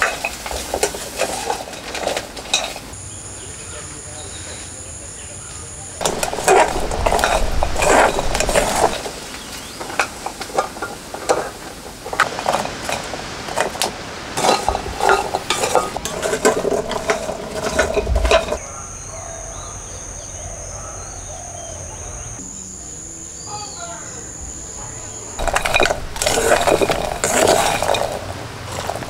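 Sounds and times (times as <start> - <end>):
insect drone: 0.0 - 29.0
birds chirping: 2.8 - 10.5, 14.4 - 29.0
seeds rattling in a metal pan: 6.0 - 13.1, 14.4 - 18.6, 25.4 - 29.0.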